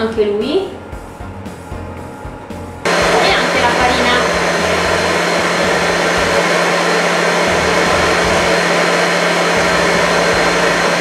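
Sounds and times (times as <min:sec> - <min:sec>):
food processor whirring: 0:02.9 - 0:11.0.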